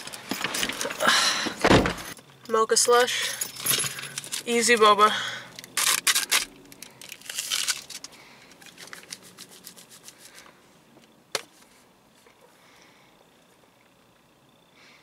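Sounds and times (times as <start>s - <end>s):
plastic wrapper crinkling: 5.6s - 10.4s.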